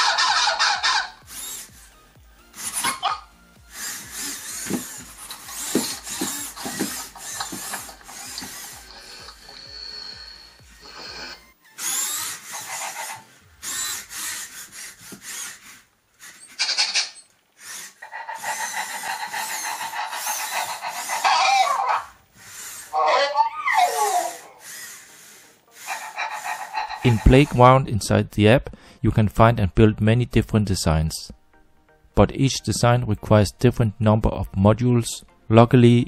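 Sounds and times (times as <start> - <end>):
robot servo motors whirring: 0.0 - 1.9, 2.5 - 27.5.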